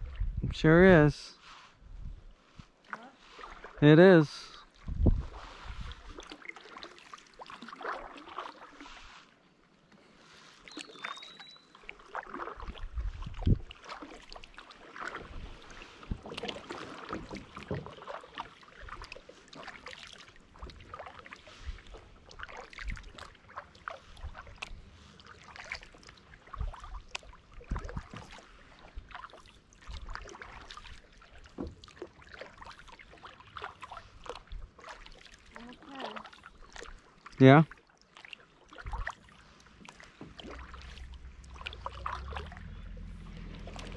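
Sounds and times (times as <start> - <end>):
paddle splashing in water: 1.4 - 43.9
paddle thump: 39.8 - 43.0
water dripping: 39.9 - 43.9.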